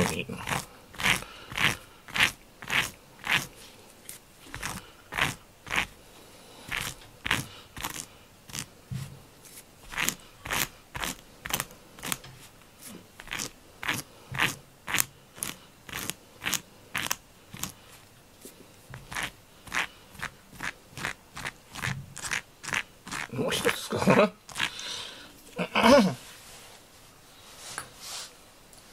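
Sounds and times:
plastic tool scraping rubber glove: 0.0 - 6.0, 6.7 - 17.8, 18.9 - 23.8, 24.5 - 24.8.

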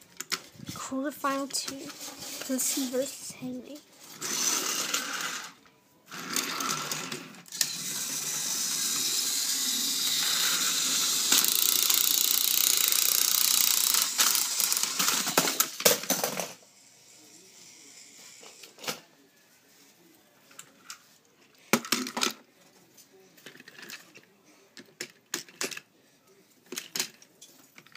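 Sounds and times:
toy electric motors whirring: 1.5 - 3.2, 4.0 - 19.0.

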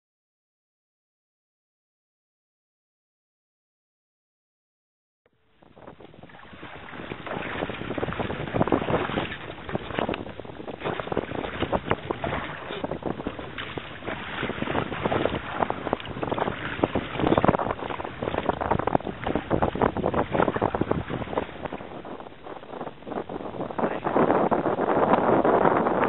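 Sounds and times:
sea water lapping: 5.5 - 25.8
wind buffeting microphone: 5.5 - 26.0.

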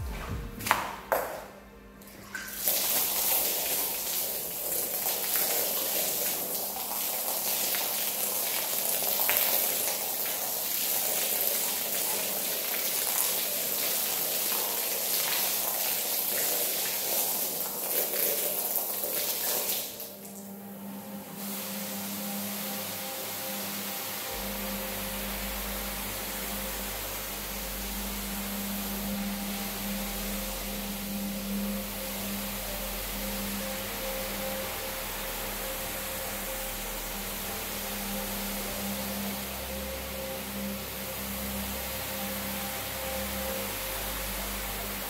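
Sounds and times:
wet rug slapped on tiles: 0.0 - 1.4
hose spraying water: 2.4 - 20.5, 21.2 - 45.0.

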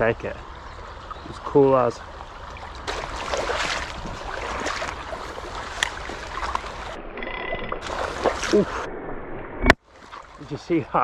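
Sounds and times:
stream water over gravel: 0.0 - 8.9, 9.6 - 11.0
wind rumbling on microphone: 2.0 - 9.7.

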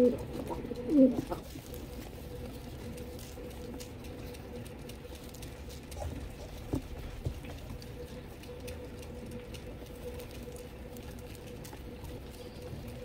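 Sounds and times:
pigeons pecking on hard floor: 0.0 - 13.0.

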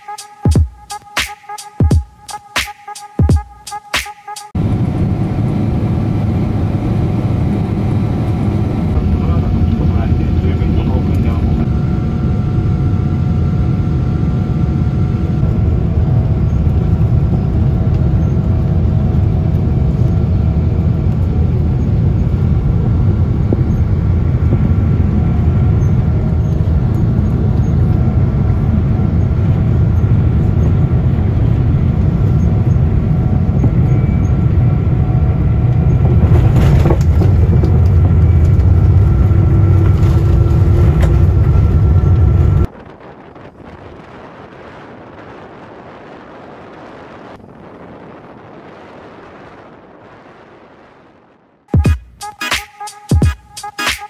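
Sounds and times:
airliner cabin engine rush: 4.5 - 51.9
faint whining tones: 21.1 - 51.3.

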